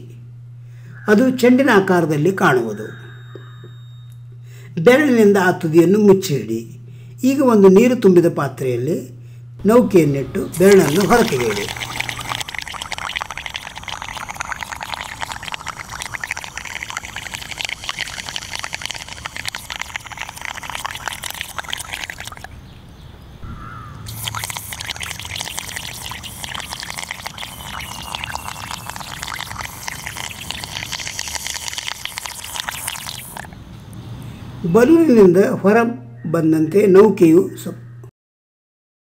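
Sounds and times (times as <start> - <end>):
air bubbling through straw underwater: 10.5 - 22.5, 24.1 - 33.6.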